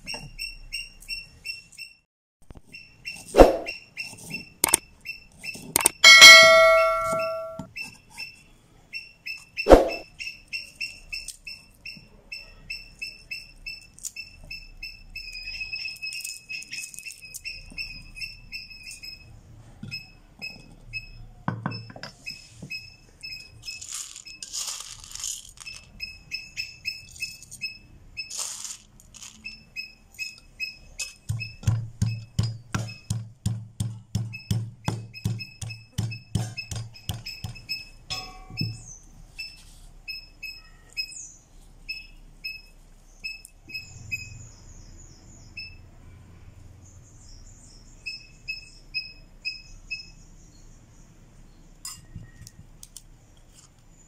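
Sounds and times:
small animal chirping: 2.7 - 19.3, 19.9 - 24.6, 25.6 - 28.6, 29.2 - 33.1
loud ringing clank: 6.0 - 7.7, 38.1 - 38.6
pestle pounding in wooden mortar: 31.2 - 37.7.

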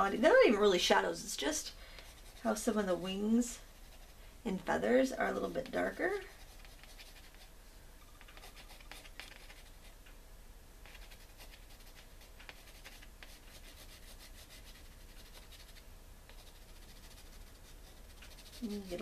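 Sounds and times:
pencil scratching on paper: 2.0 - 3.0, 3.7 - 4.2, 5.4 - 7.5, 8.2 - 10.0, 10.8 - 19.0.

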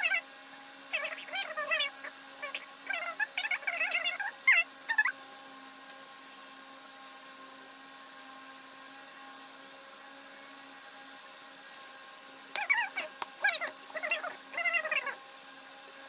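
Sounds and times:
appliance motor humming: 0.0 - 16.0.

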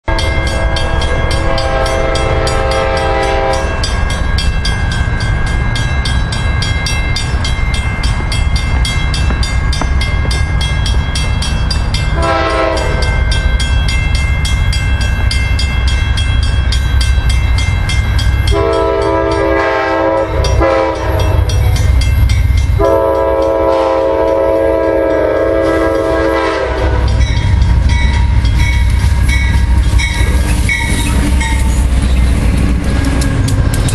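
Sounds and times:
train rolling on rails: 0.0 - 33.9
train air horn blasts: 0.1 - 3.8, 12.1 - 13.2, 18.5 - 21.5, 22.8 - 27.4.

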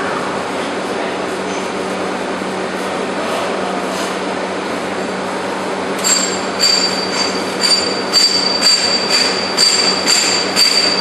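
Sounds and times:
roll forming machine humming: 0.0 - 11.0
metallic clanking with ringing tone: 6.0 - 11.0.

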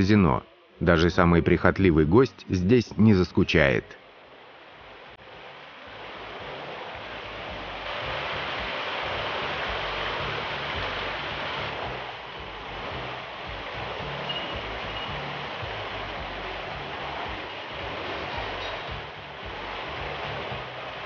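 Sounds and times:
waterfall splashing into pool: 5.2 - 21.0.

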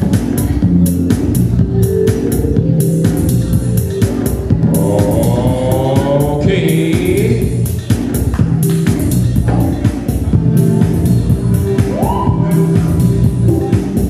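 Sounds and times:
bass line: 0.0 - 14.0
drum beat: 0.0 - 14.0
person singing: 4.5 - 7.8.

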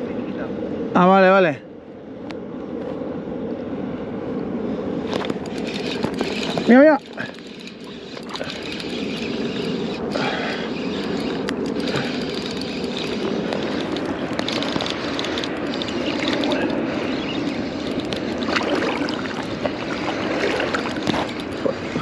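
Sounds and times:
water lapping against float tube: 5.2 - 22.0.

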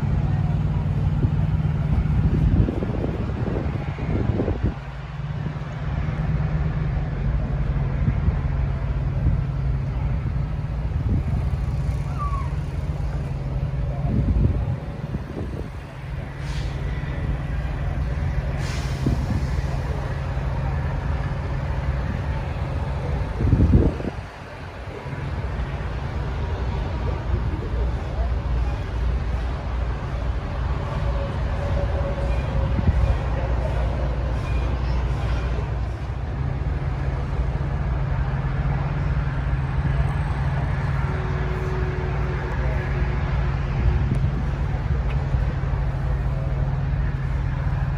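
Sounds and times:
diesel truck engine idling: 0.0 - 47.9
outdoor noise: 0.0 - 47.9
brief air hisses: 16.4 - 17.0, 18.5 - 19.8.

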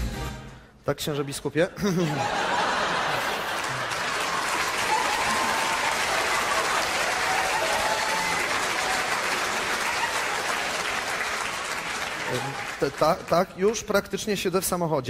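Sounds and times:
audience applauding: 2.2 - 14.0.

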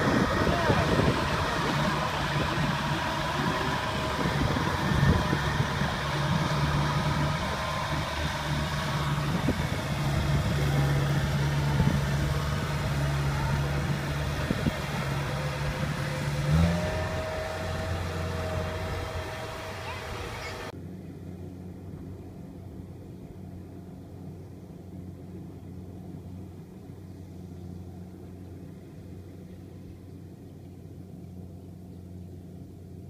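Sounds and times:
higher whine: 0.0 - 20.7
diesel engine humming: 0.0 - 33.0.

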